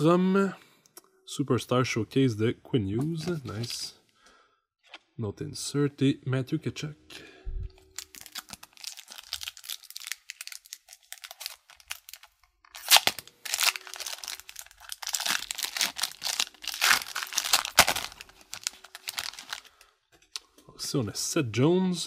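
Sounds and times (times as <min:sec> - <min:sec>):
foil wrapper crinkling: 0:08.0 - 0:19.8
foil wrapper ripping: 0:08.0 - 0:19.8.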